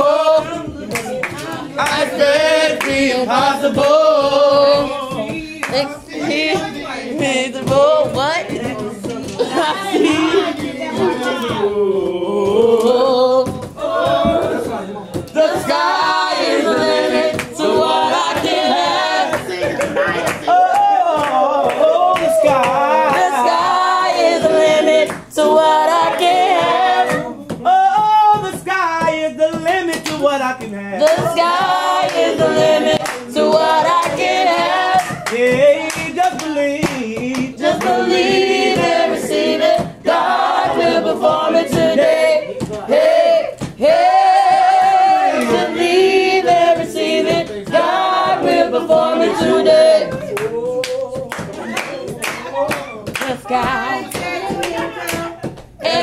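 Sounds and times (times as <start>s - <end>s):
choir singing a cappella: 0.0s - 8.2s, 9.3s - 28.0s, 31.0s - 56.0s
hands clapping: 0.4s - 5.9s, 16.4s - 25.3s, 26.0s - 40.0s, 43.5s - 56.0s.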